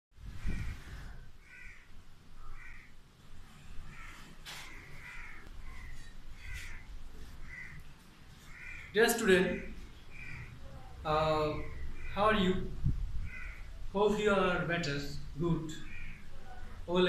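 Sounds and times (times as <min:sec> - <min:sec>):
crows cawing: 0:00.4 - 0:03.0, 0:03.8 - 0:10.8, 0:11.5 - 0:12.2, 0:13.2 - 0:13.8, 0:15.7 - 0:16.9.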